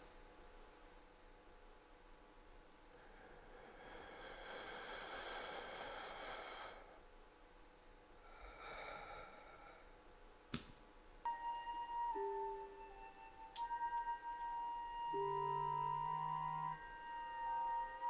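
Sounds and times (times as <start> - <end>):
faint steady hum: 0.0 - 18.0
man breathing heavily while sleeping: 2.8 - 7.2, 8.1 - 10.3.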